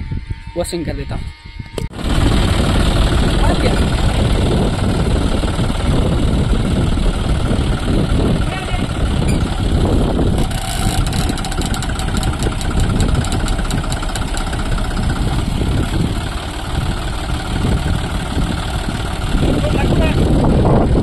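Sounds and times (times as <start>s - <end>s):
tractor diesel engines running: 1.9s - 21.0s
rapid clicks: 10.4s - 14.6s.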